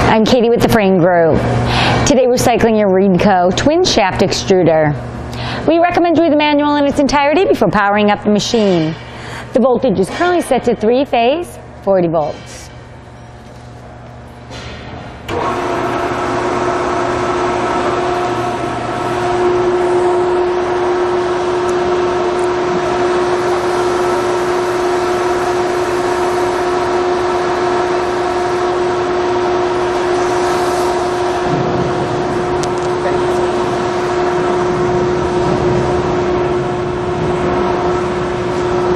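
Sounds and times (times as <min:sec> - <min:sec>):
mixer motor whining: 0:13.4 - 0:38.9.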